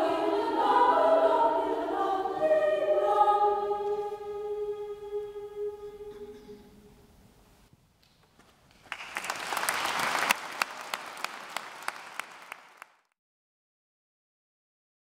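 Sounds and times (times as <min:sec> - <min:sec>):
audience applauding: 0:08.7 - 0:13.1.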